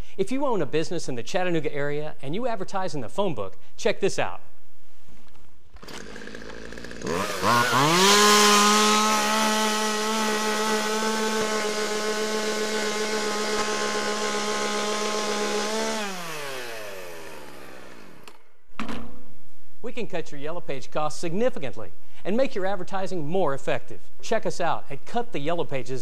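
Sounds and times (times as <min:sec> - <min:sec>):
chainsaw revving and cutting: 0:05.8 - 0:18.4.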